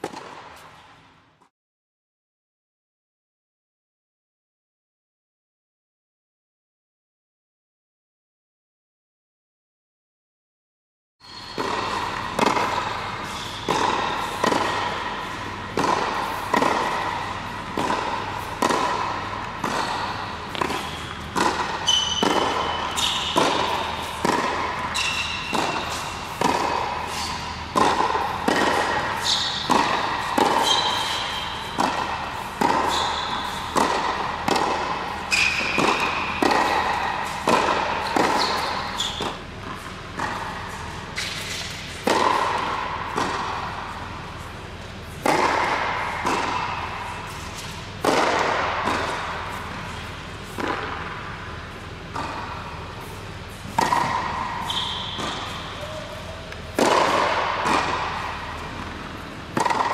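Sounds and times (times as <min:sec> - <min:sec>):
tennis balls struck by rackets: 0:00.0 - 0:00.8, 0:11.5 - 0:59.9
shoe squeaks: 0:11.2 - 0:11.6, 0:19.8 - 0:23.8, 0:24.9 - 0:26.2, 0:29.2 - 0:29.7, 0:30.6 - 0:31.8, 0:32.8 - 0:33.7, 0:35.3 - 0:36.4, 0:38.0 - 0:39.4, 0:54.6 - 0:56.4.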